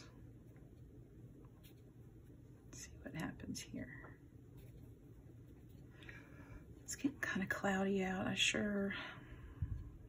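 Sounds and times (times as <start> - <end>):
low room hum: 0.0 - 10.0
paintbrush scratching on paper plate: 0.6 - 2.4, 4.5 - 5.9.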